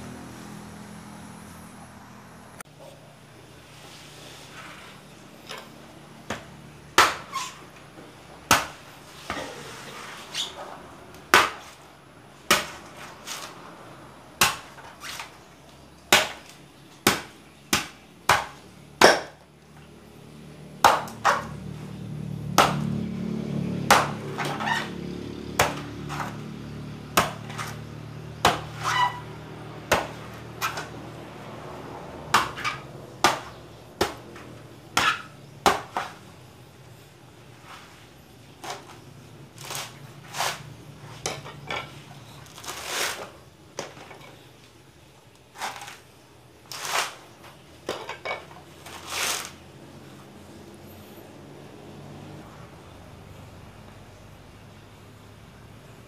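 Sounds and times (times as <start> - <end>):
machete chopping coconut husk: 5.4 - 36.4, 37.6 - 44.5, 45.4 - 49.6.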